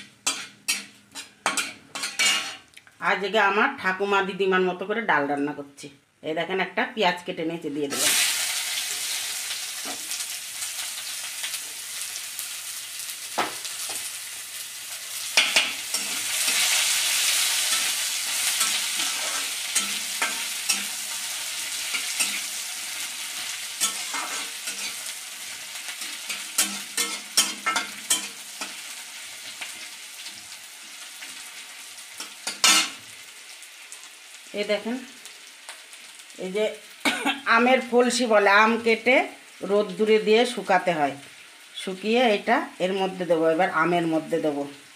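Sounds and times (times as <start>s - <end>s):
metal spatula scraping pan: 0.0s - 2.7s, 15.2s - 30.3s, 32.2s - 33.0s
onion sizzling in oil: 0.0s - 3.7s, 7.8s - 44.9s.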